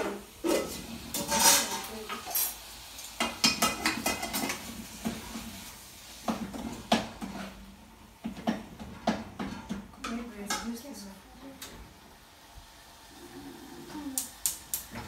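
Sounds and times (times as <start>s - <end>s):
metal pots and lids clinking: 0.0s - 2.6s, 3.2s - 5.2s.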